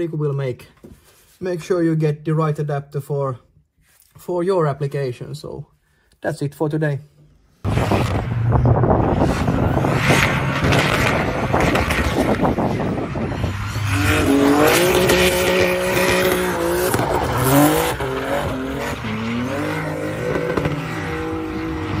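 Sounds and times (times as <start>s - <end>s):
car engine revving hard: 7.6s - 22.0s.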